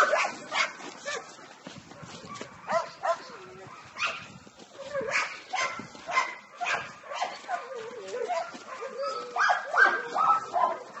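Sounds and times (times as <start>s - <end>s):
dog whining and yelping: 7.5s - 10.7s.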